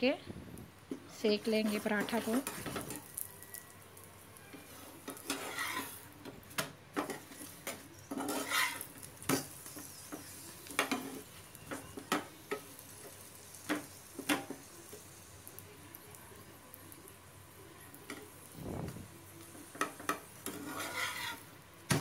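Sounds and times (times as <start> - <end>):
faint oil sizzling: 0.0 - 22.0
spatula scraping on griddle: 0.9 - 15.6, 19.4 - 22.0.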